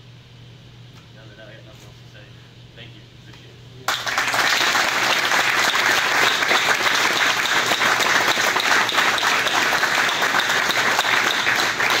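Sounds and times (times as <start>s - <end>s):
group applauding: 3.9s - 12.0s.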